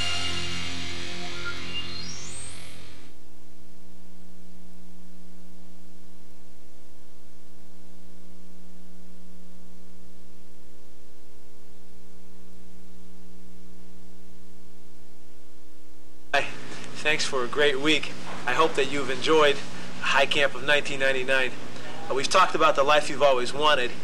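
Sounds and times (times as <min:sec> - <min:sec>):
music: 0:00.0 - 0:03.1
electrical hum with tape hiss: 0:00.0 - 0:24.0.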